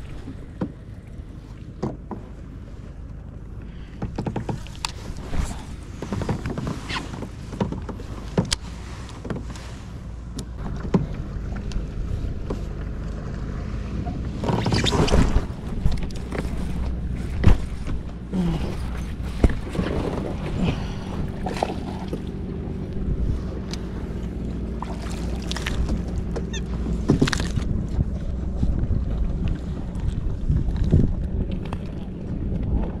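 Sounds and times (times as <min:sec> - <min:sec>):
water noise: 0:00.0 - 0:33.0
knocks and clicks on boat hull: 0:00.3 - 0:00.8, 0:01.7 - 0:02.4, 0:03.9 - 0:05.2, 0:05.8 - 0:09.7, 0:10.3 - 0:13.1, 0:19.0 - 0:20.4, 0:25.6 - 0:28.2
wind noise: 0:14.1 - 0:24.4, 0:25.7 - 0:33.0.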